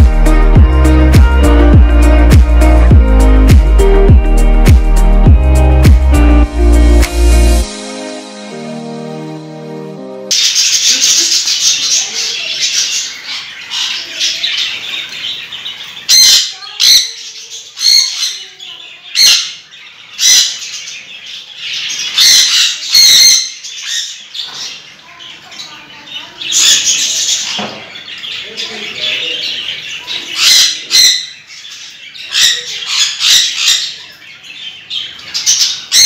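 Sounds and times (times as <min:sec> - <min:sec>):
parrots screeching: 0:10.3 - 0:25.4, 0:26.3 - 0:36.0
high-pitched bird chatter: 0:10.3 - 0:36.0.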